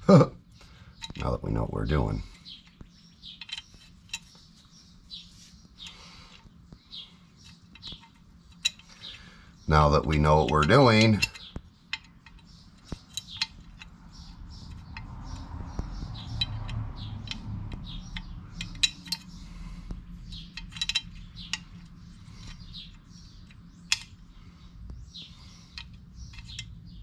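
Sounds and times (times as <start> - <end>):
birds chirping: 0.0 - 27.0
metal hardware clicking: 2.2 - 4.4, 7.4 - 9.2, 9.9 - 19.5, 20.2 - 24.2, 25.6 - 27.0.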